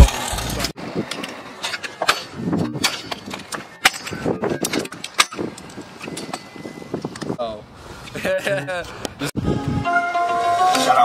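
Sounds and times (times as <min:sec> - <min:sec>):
rolling wheel noise: 0:00.0 - 0:07.4.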